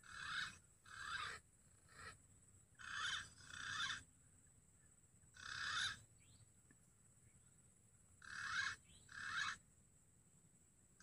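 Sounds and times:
pigeon calls: 0.0 - 2.2, 2.8 - 4.1, 5.4 - 6.0, 8.2 - 9.6.

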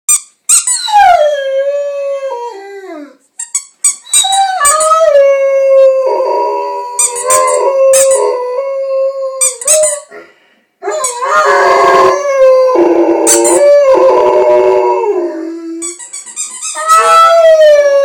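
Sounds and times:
squeaky dog toy squeaking: 0.1 - 1.0, 3.4 - 5.0, 7.0 - 8.2, 9.4 - 10.1, 15.8 - 17.2
dog howling: 10.8 - 15.9, 16.8 - 18.0.

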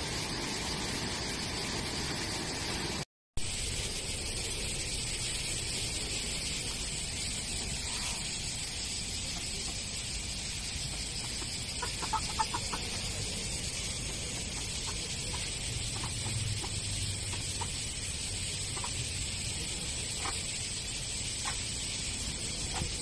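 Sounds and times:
steady hiss: 0.0 - 23.0
chickens clucking: 10.8 - 17.8.

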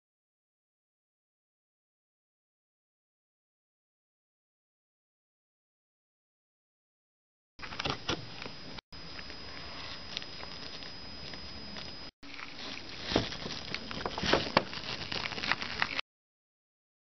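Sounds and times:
high whine: 7.6 - 16.0.

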